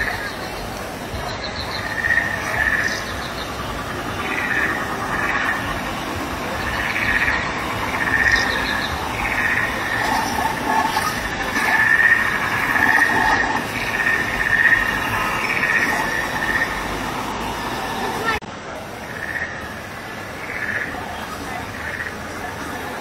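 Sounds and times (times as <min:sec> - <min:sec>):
pulsing trilling chirps: 0:00.0 - 0:18.4
small waterfalls splashing: 0:00.0 - 0:23.0.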